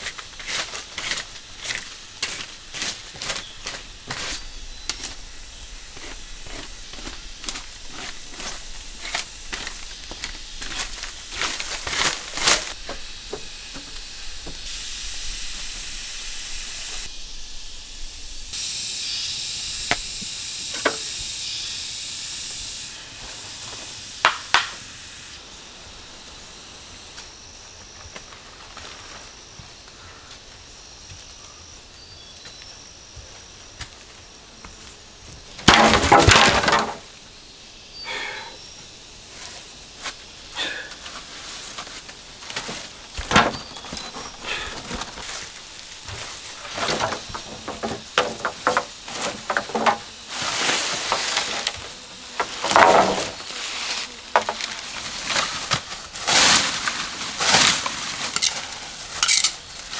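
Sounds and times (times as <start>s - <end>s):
dry bamboo cracking and snapping: 35.6s - 37.0s, 54.3s - 59.9s.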